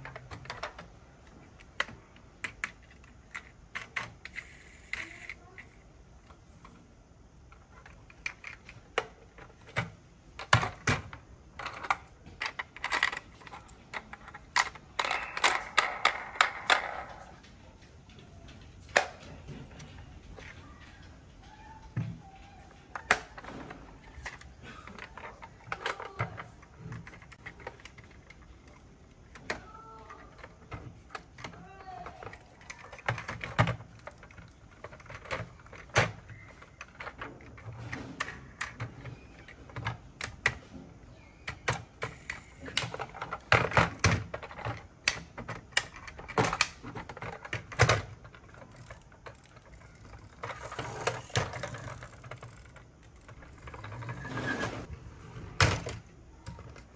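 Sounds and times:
toy truck clicking and tapping: 0:00.0 - 0:05.7.

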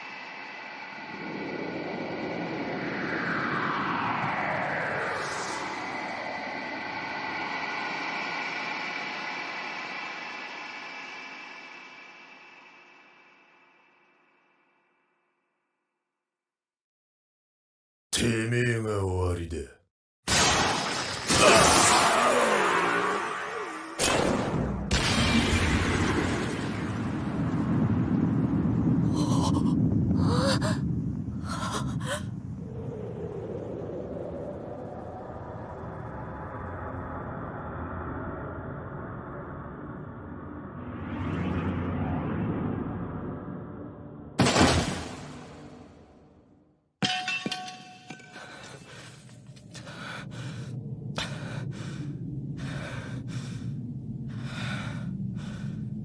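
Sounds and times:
low rumble from blast: 0:00.0 - 0:14.3, 0:24.8 - 0:44.4.

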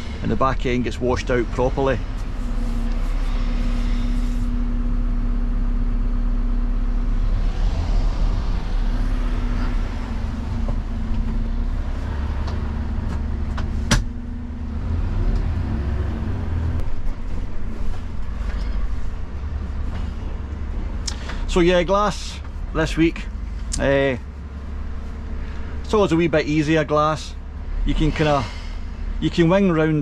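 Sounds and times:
truck diesel engine: 0:00.0 - 0:30.0.

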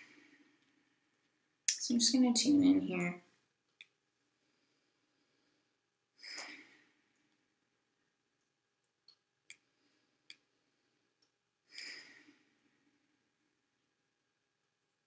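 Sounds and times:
faint small clicks: 0:03.7 - 0:04.0
person breathing: 0:04.3 - 0:07.3, 0:09.6 - 0:13.2.

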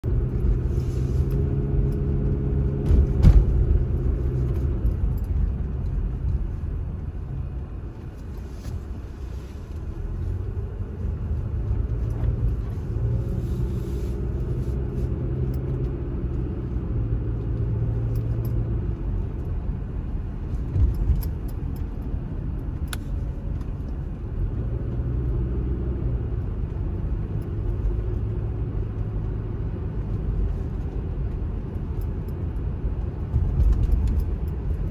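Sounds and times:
car engine hum: 0:00.0 - 0:34.9
road rumble: 0:00.0 - 0:34.9
sharp thump: 0:02.8 - 0:03.8.

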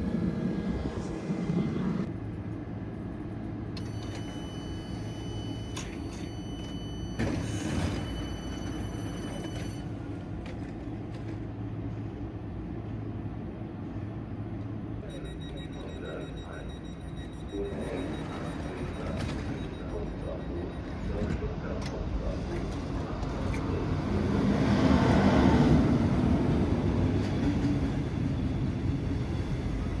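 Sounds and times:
train low hum: 0:00.0 - 0:30.0
high steady whine: 0:15.0 - 0:23.8.

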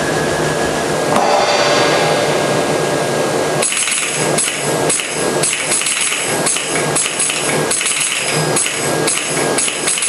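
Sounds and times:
metallic organ percussion: 0:01.1 - 0:07.0.

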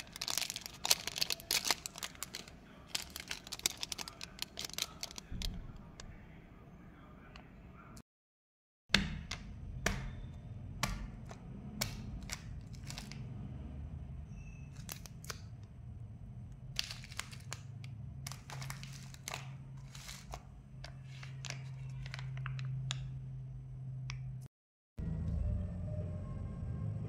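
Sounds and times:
plastic wrappers crinkling: 0:00.0 - 0:05.7, 0:12.1 - 0:13.2, 0:14.7 - 0:15.5, 0:16.7 - 0:23.1.

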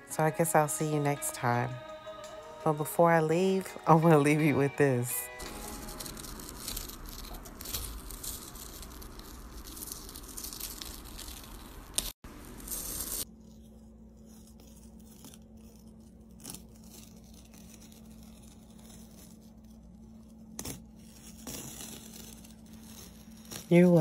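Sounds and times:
tape peeling off canvas: 0:05.4 - 0:24.0.

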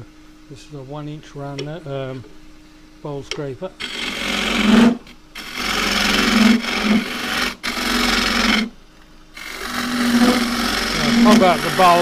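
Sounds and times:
lathe tool shaving wet wood: 0:03.8 - 0:08.7, 0:09.4 - 0:12.0.

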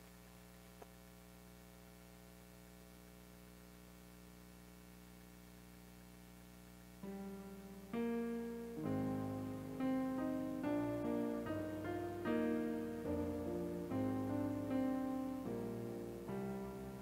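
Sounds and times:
faint electrical hum: 0:00.0 - 0:17.0
digital piano chords: 0:07.0 - 0:17.0.

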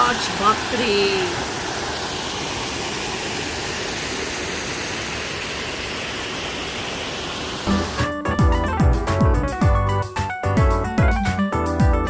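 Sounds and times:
waterfall rushing over rocks: 0:00.0 - 0:08.0.

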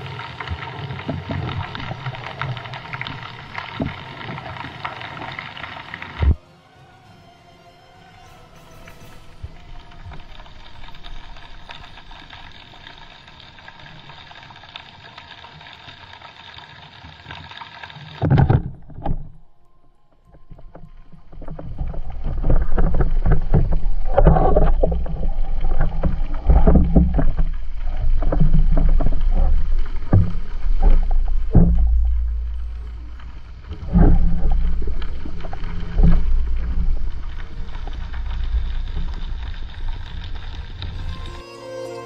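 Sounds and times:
background music with held tones: 0:06.4 - 0:10.9, 0:19.3 - 0:21.3, 0:41.0 - 0:42.0
low rushing water: 0:20.4 - 0:42.0
loud underwater thumps: 0:22.4 - 0:37.4.

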